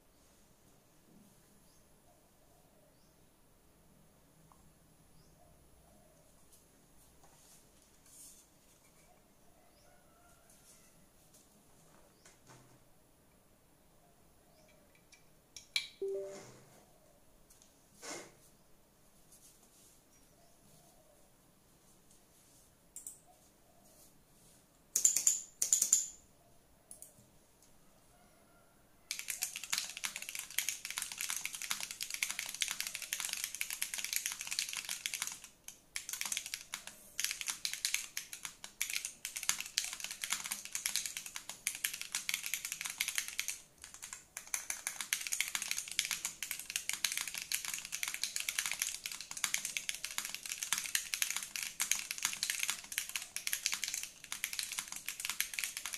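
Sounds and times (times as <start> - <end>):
mechanical keyboard typing: 25.0 - 26.2, 29.1 - 55.9.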